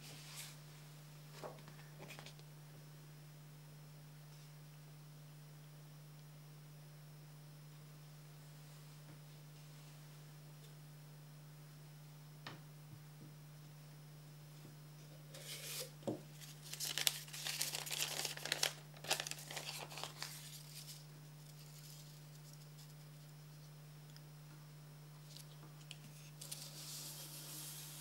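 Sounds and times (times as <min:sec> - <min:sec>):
faint electrical hum: 0:00.0 - 0:28.0
paper crinkling: 0:15.4 - 0:23.3.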